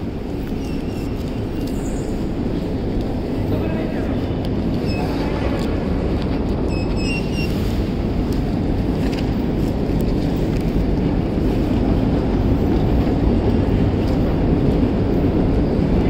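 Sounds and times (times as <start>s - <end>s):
escalators rumbling: 0.0s - 16.0s
turnstile beep: 0.4s - 2.3s, 4.7s - 5.7s, 6.5s - 7.8s.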